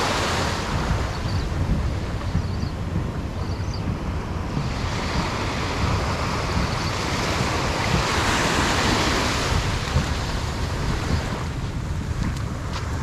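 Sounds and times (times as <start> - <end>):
small waves breaking on sand: 0.0 - 1.1, 4.4 - 13.0
wind rumble on microphone: 0.0 - 13.0.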